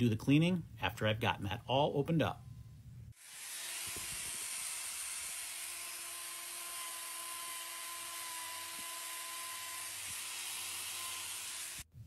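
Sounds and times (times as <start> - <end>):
angle grinder grinding hoof: 3.2 - 11.9.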